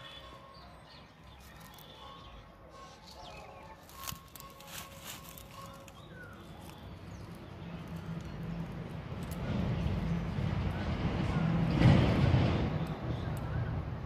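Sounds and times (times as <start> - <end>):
bird chirp: 0.0 - 9.0
hands handling flowers: 1.3 - 8.4.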